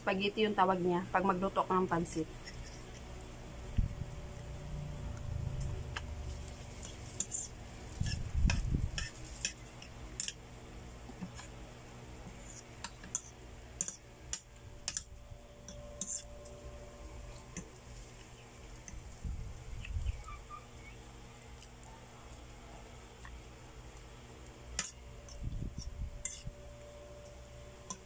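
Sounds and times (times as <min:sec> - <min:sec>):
fork scraping a plate: 0:02.4 - 0:03.2, 0:06.4 - 0:10.4, 0:12.2 - 0:14.0, 0:14.8 - 0:16.4, 0:24.8 - 0:26.6.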